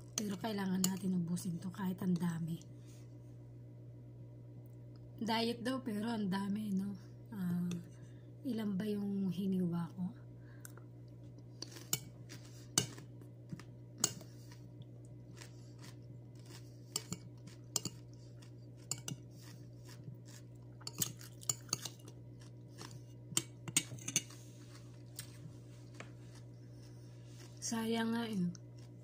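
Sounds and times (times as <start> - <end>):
steady low hum: 0.0 - 29.0
person chewing crunchy cucumber: 10.7 - 23.6, 24.4 - 27.6, 28.5 - 29.0
fork picking at salad: 11.6 - 13.1, 14.0 - 14.7, 15.3 - 27.6.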